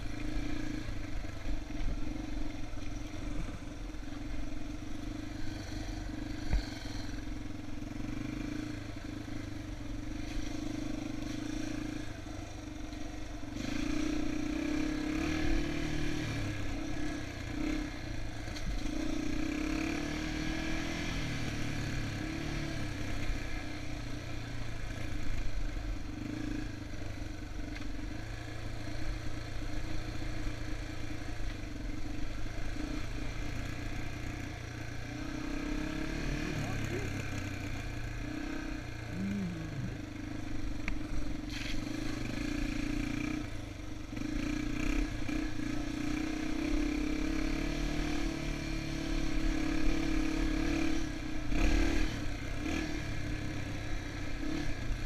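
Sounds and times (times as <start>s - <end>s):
motorbike engine revving: 35.0s - 43.5s, 44.1s - 54.9s.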